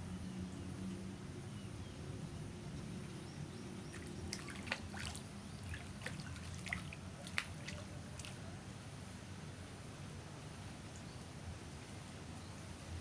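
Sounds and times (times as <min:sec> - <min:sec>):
fish splashing at water surface: 0:03.8 - 0:08.4.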